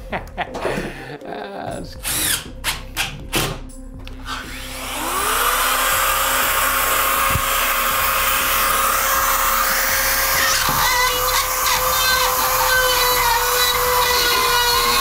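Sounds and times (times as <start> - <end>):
cordless drill driving screws: 2.0 - 2.8, 4.3 - 15.0
spiral saw motor whining: 4.2 - 15.0.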